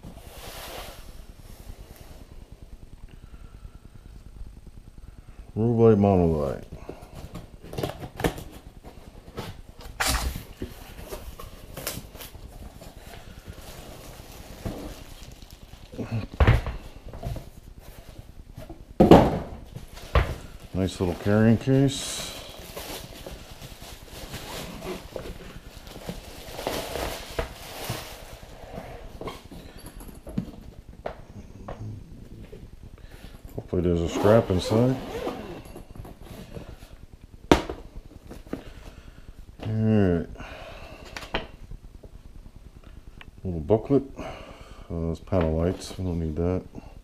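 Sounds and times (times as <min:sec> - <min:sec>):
plastic bag crinkling: 0:10.0 - 0:16.2, 0:19.9 - 0:29.9.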